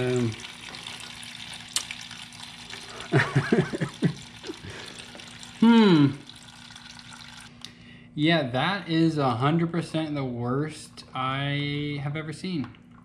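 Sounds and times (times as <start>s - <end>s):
water splashing into drain pan: 0.0s - 5.6s, 6.2s - 7.5s
man exclaiming: 5.6s - 6.2s.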